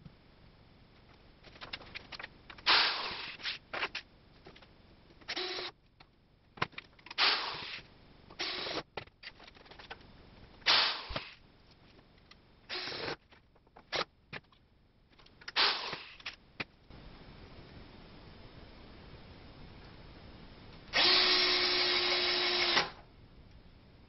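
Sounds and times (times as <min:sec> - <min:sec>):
cordless drill driving screws: 0:05.3 - 0:05.7, 0:08.4 - 0:08.8, 0:21.0 - 0:23.0.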